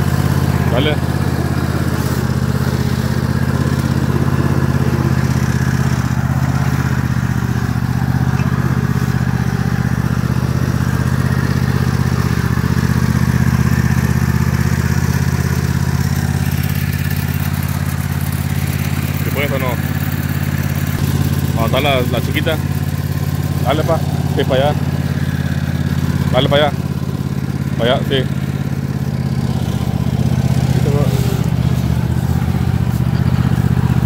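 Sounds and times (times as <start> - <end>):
riding mower engine drone: 0.0 - 34.0.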